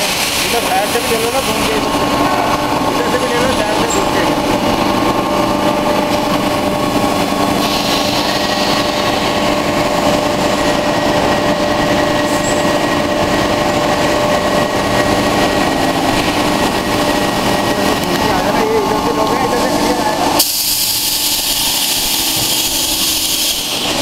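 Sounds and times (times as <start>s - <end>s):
factory machinery hum: 0.0s - 24.0s
constant whining tones: 0.1s - 24.0s
hiss: 7.6s - 9.1s, 20.4s - 24.0s.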